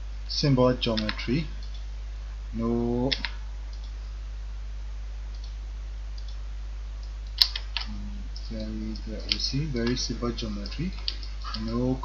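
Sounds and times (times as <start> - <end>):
low hum: 0.0 - 12.0
computer mouse clicks: 0.9 - 1.9, 3.1 - 4.0, 5.3 - 5.6, 6.2 - 6.4, 7.0 - 11.8.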